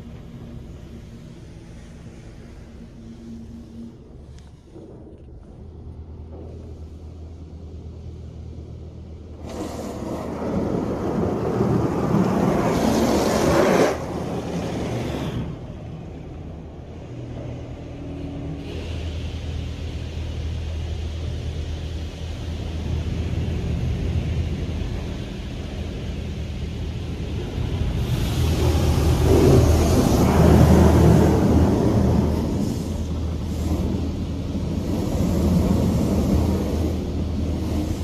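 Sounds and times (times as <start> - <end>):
steady low hum: 0.0 - 9.4
water jets spraying a car: 0.0 - 17.0, 18.5 - 38.0.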